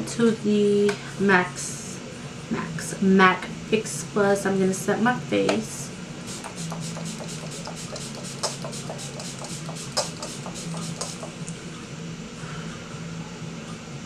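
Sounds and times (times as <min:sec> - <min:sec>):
steady low hum: 0:00.0 - 0:14.0
spray bottle misting spritzes: 0:06.3 - 0:11.4.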